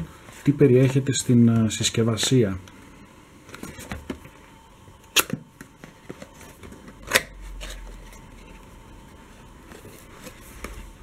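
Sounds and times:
cardboard scraping and rustling: 9.6s - 11.0s.

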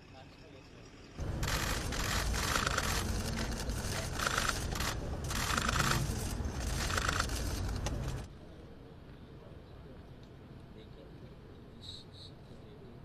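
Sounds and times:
camera shutters clicking rapidly: 1.3s - 8.3s.

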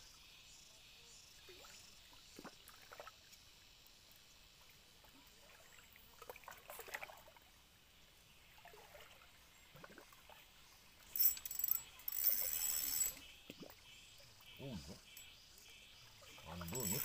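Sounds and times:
faint outdoor hiss: 0.0s - 17.0s.

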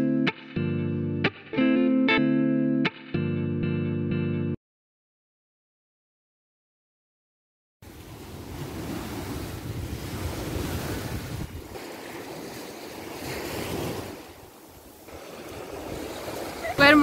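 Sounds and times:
sea waves breaking on sand: 7.8s - 17.0s
wind rumbling on microphone: 7.9s - 17.0s.

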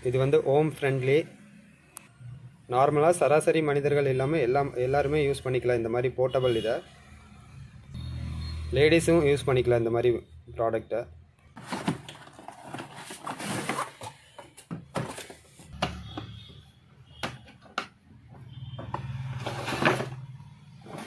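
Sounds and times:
cardboard box rustling and scraping: 11.6s - 15.7s.

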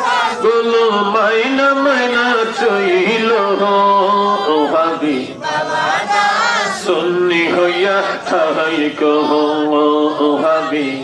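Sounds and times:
man singing into a microphone: 0.0s - 5.7s, 6.8s - 11.0s.

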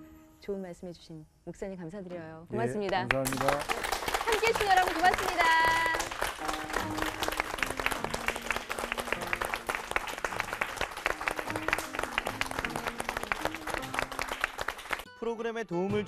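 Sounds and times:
audience applauding: 2.6s - 15.1s
closing music: 4.5s - 16.0s.

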